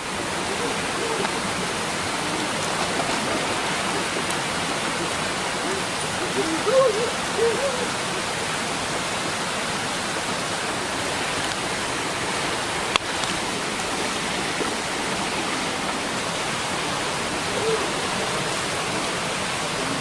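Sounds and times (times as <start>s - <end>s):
waterfall rushing over rocks: 0.0s - 20.0s.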